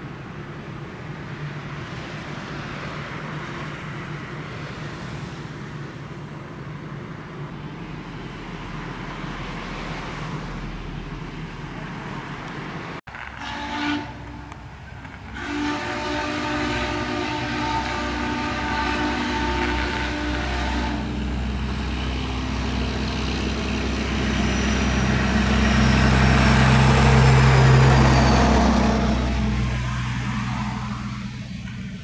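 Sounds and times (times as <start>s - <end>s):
train rushing noise: 0.0s - 32.0s
steam locomotive whistle: 13.3s - 14.6s, 15.3s - 21.3s.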